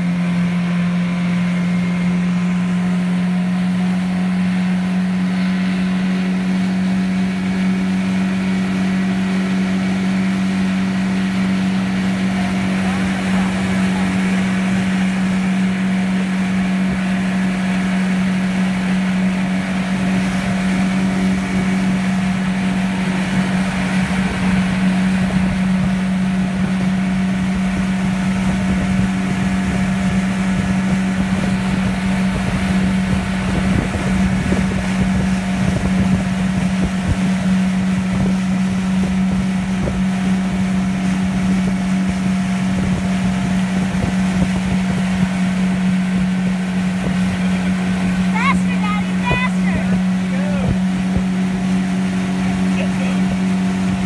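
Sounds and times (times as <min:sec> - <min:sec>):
outboard motor hum: 0:00.0 - 0:54.0
water rushing in wake: 0:00.0 - 0:54.0
wind on microphone: 0:11.1 - 0:48.3, 0:49.1 - 0:52.7.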